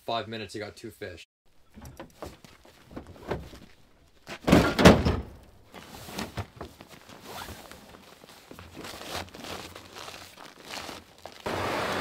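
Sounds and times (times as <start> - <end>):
tailgate metal thunks: 4.3 - 5.5.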